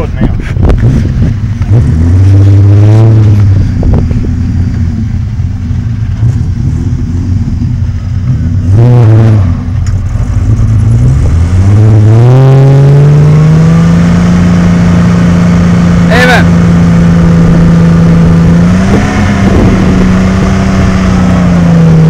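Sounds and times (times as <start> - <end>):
engine idling and revving: 0.0 - 22.0.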